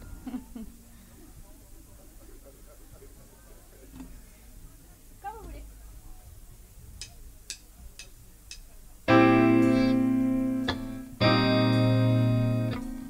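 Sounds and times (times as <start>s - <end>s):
electronic keyboard sustained chords: 9.1s - 13.0s
count-in clicks: 10.6s - 11.0s.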